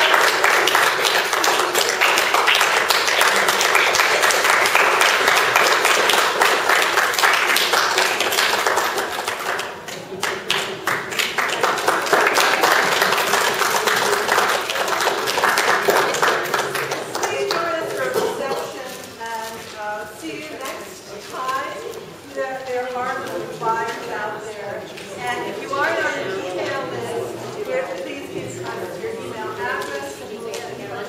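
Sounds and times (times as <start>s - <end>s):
audience applauding: 0.0s - 18.5s.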